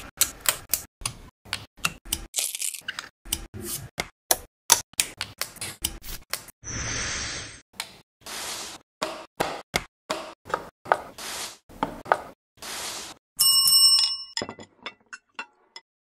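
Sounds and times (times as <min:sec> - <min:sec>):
card sliding across wood: 0:11.0 - 0:11.6
bell-like ring: 0:13.4 - 0:14.4.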